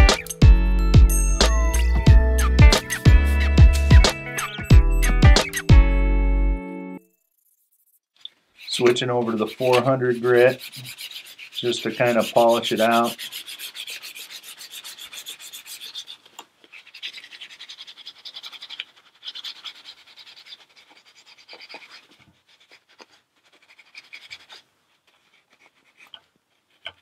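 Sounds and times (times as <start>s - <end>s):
sandpaper rubbing on plastic: 7.4s - 27.0s.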